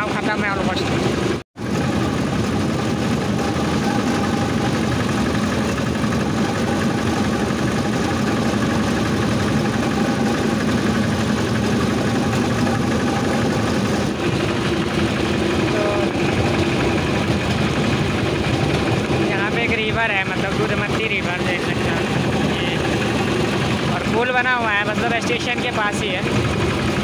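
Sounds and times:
motor trolley engine running: 0.0s - 27.0s.

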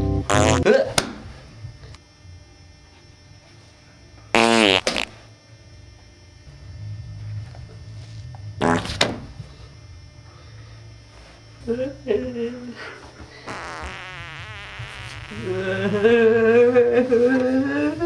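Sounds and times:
loud farts: 0.3s - 0.8s, 4.3s - 5.2s, 8.6s - 9.3s, 13.4s - 16.3s.

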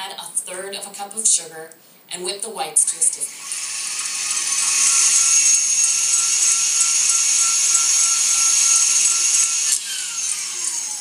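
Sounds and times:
stand mixer motor whine: 3.3s - 11.0s.

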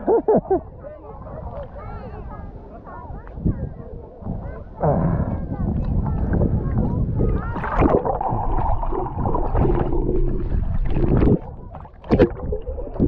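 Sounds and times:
underwater bubbling: 4.2s - 13.0s
water sloshing and gurgling: 4.2s - 13.0s.

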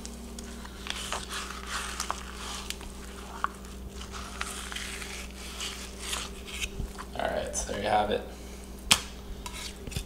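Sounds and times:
knife scraping fish skin: 0.9s - 7.1s.

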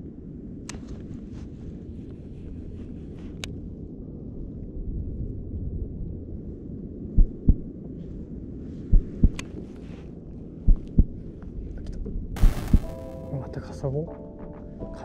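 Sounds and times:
low steady rumble: 1.2s - 13.4s
heartbeat double thumps: 7.2s - 7.7s, 8.9s - 9.4s, 10.7s - 11.2s, 12.4s - 13.2s.

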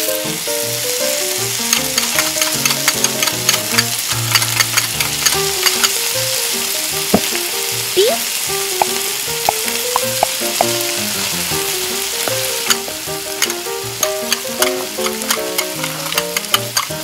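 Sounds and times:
oil sizzling in a wok: 0.0s - 17.0s
soft background music: 0.0s - 17.0s
metal fork scraping a pan: 1.6s - 6.0s, 12.2s - 17.0s.

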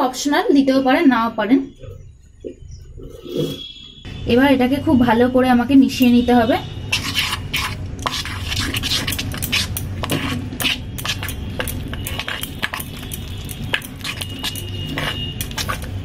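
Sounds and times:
spoon clinking and scraping bowl: 6.9s - 16.0s.

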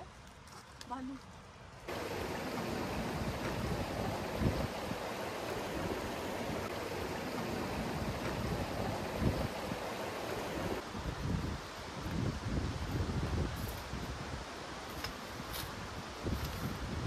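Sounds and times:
stream flowing over stones: 1.9s - 10.8s.

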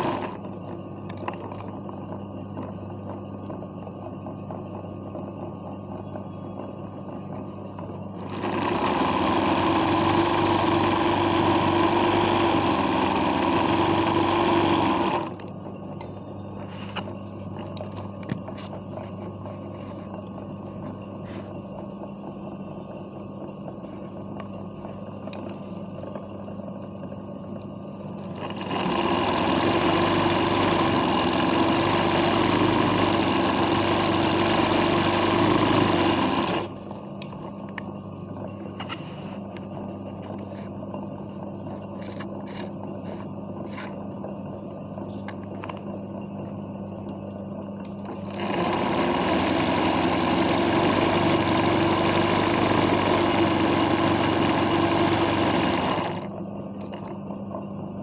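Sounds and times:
sewing machine running fast: 0.0s - 0.5s, 8.1s - 15.5s, 28.2s - 36.9s, 48.0s - 56.4s
steady low hum: 0.0s - 58.0s.

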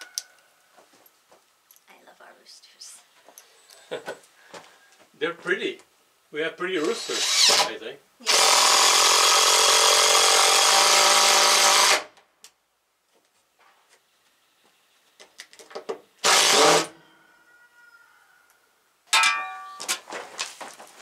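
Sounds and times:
power drill whining: 6.9s - 7.6s, 8.2s - 12.1s, 16.2s - 17.0s.

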